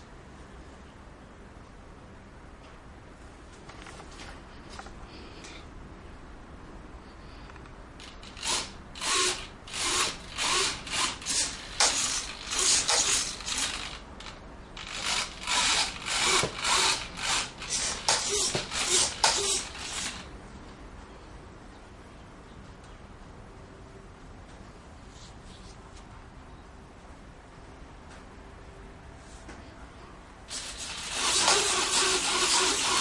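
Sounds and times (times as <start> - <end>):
steady low background noise: 0.0 - 31.3
rhythmic rasping strokes: 8.0 - 20.3, 30.5 - 33.0.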